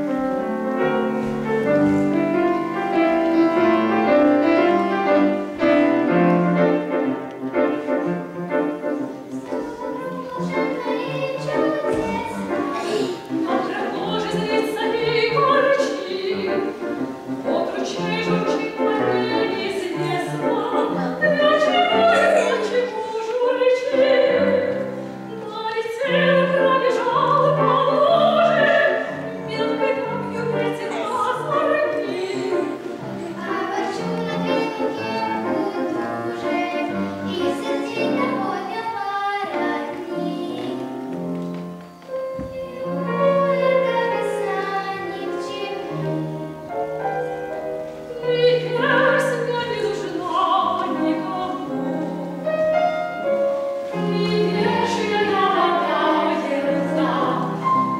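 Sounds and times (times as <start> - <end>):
grand piano: 0.0 - 57.9
woman and girls singing operatically: 9.3 - 41.0, 42.4 - 46.6, 48.1 - 52.8, 53.9 - 57.6.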